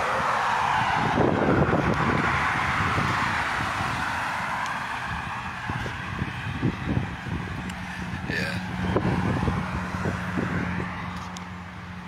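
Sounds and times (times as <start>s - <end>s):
road traffic rush: 0.0s - 12.0s
wind rumble on microphone: 0.0s - 12.0s.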